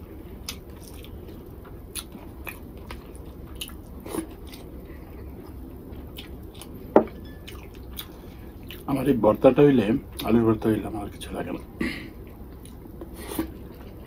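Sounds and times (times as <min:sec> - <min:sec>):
chewing: 0:00.4 - 0:08.9.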